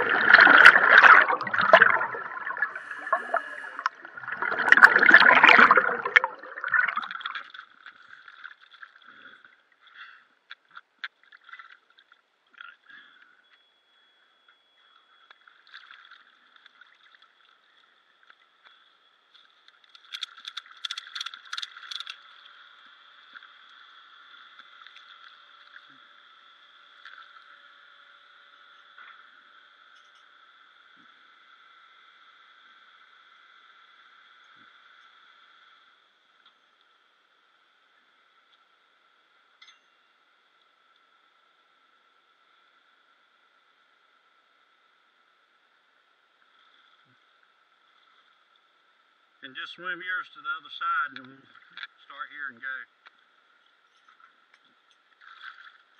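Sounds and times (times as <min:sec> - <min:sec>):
water bubbling and gurgling: 0:00.0 - 0:09.8
underwater ticks: 0:00.0 - 0:13.6, 0:14.5 - 0:27.6, 0:50.9 - 0:52.4, 0:53.0 - 0:55.9
sharp splashing clicks: 0:19.6 - 0:22.4.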